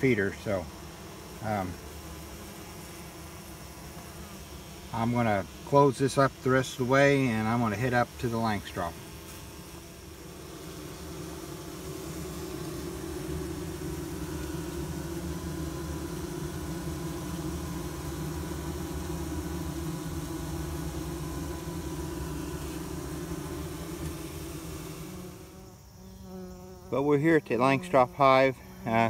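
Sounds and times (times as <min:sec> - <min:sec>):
man talking: 0:00.0 - 0:00.7, 0:01.4 - 0:01.8, 0:04.9 - 0:09.0, 0:26.9 - 0:29.0
bees humming: 0:00.0 - 0:29.0.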